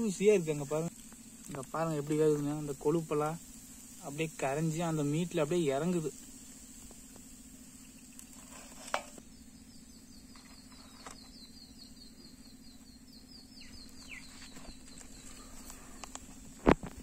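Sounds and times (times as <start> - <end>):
steady low hum: 0.0 - 17.0
bird trilling: 7.7 - 16.2
short falling bird calls: 9.6 - 16.4.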